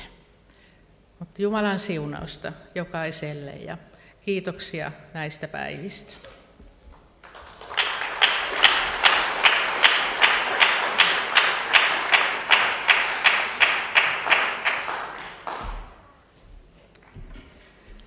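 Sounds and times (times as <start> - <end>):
audience clapping in unison: 6.9 - 16.2.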